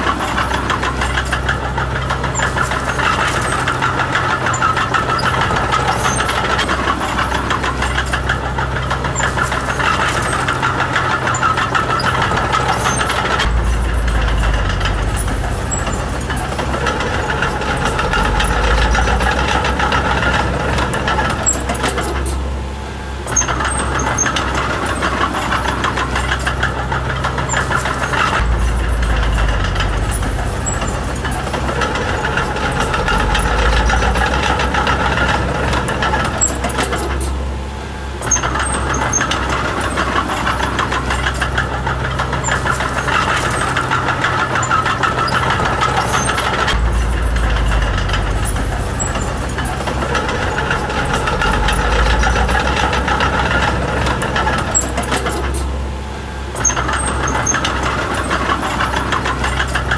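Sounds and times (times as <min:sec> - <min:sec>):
bulldozer diesel engine running: 0:00.0 - 0:59.9.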